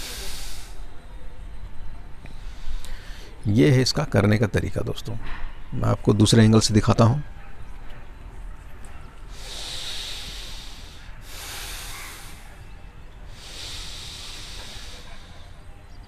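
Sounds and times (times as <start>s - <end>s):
man breathing through nose: 0.0s - 0.9s, 2.3s - 3.4s, 9.2s - 15.9s.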